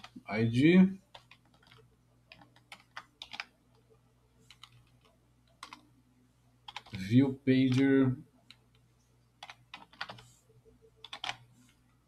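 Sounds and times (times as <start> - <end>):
keyboard typing: 0.0 - 0.2, 1.1 - 5.9, 6.7 - 7.0, 9.4 - 11.8
faint low hum: 0.0 - 12.0.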